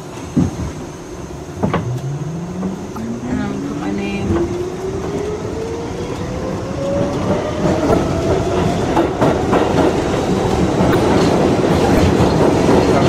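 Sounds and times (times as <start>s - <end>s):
train rumble: 0.0s - 13.0s
wheels clacking over rails: 0.0s - 13.0s
train motor whine rising: 0.7s - 8.4s.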